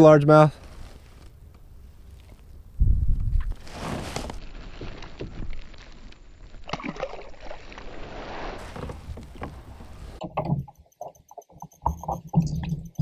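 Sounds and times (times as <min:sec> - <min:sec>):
water sloshing against kayak: 0:06.5 - 0:10.2
background music with steady beat: 0:10.7 - 0:13.0.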